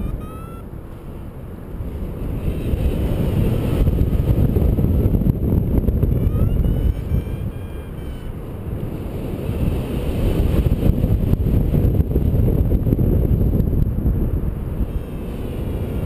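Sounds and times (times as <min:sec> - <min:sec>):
faint high rising tones: 0:00.0 - 0:01.3, 0:06.2 - 0:08.6
wind buffeting microphone: 0:00.0 - 0:16.0.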